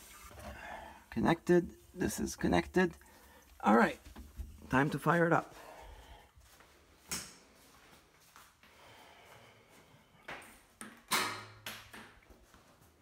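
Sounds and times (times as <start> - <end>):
footsteps on tiled floor: 2.6 - 10.8, 12.1 - 13.0.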